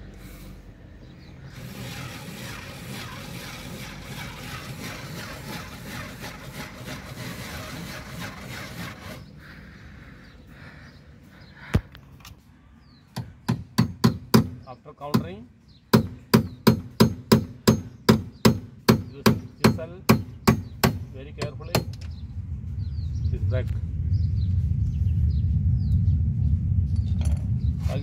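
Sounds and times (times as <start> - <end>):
power drill grinding metal: 1.5 - 9.3.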